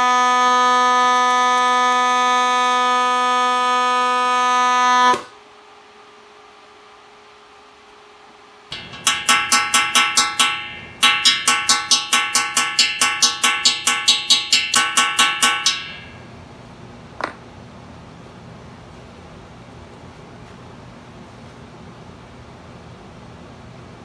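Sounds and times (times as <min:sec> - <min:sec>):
hammer tapping metal tool: 0:08.7 - 0:16.3.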